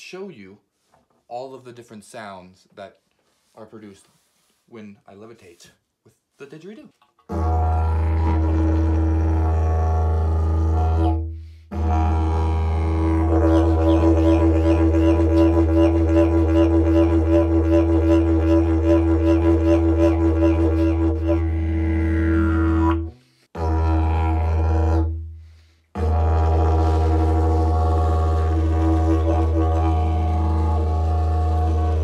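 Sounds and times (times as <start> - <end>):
didgeridoo drone: 7.3 - 25.3, 26.0 - 32.0.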